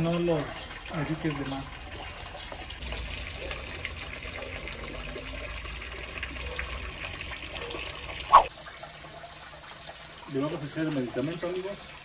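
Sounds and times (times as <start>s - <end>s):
water running and trickling: 0.0s - 12.0s
short sharp chirp: 8.3s - 8.5s.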